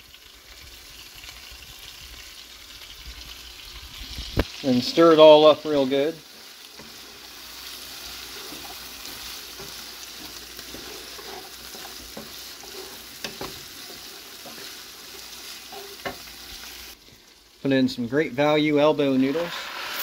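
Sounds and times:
food sizzling in a skillet: 0:00.0 - 0:20.0
wooden spatula scraping: 0:04.9 - 0:17.0
spatula clacking against pan: 0:08.4 - 0:14.8.

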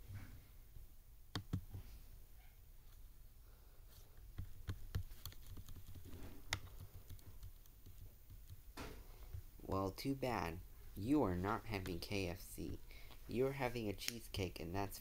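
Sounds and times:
computer mouse clicks: 0:01.3 - 0:01.7, 0:04.4 - 0:08.6
keyboard taps: 0:01.3 - 0:01.8, 0:04.3 - 0:09.5.

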